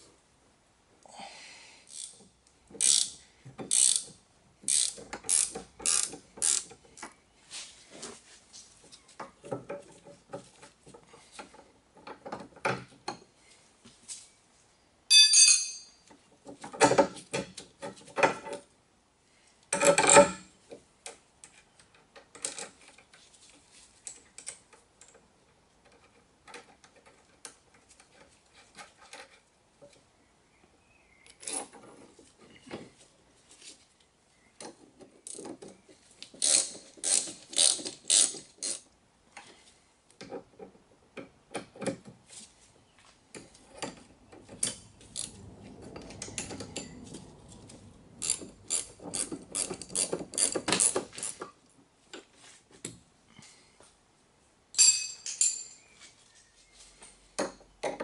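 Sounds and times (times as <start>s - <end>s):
ratcheting spanner clicking: 1.9s - 6.7s, 36.2s - 38.8s, 43.8s - 45.4s, 46.0s - 51.5s
loud metallic clink with ring: 15.1s - 16.0s, 54.8s - 55.9s
metal tools clinking: 15.1s - 16.1s, 43.4s - 51.4s, 54.8s - 56.1s.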